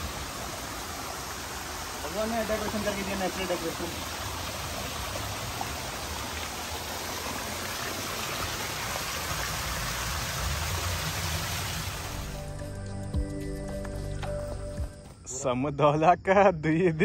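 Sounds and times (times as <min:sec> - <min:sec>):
stream rushing: 0:00.0 - 0:12.5.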